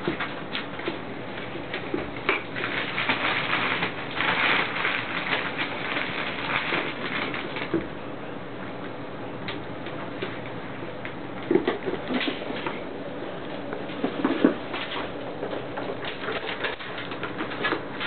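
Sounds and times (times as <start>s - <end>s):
scrabbling and rustling: 0.0s - 7.9s, 9.8s - 18.0s
claws clicking on wooden floor: 13.6s - 18.0s.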